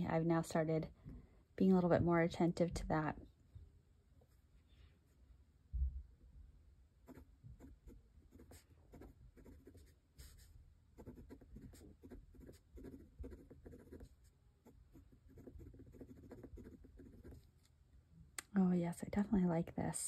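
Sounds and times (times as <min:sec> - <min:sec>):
fountain pen scratching on paper: 0:07.1 - 0:17.6.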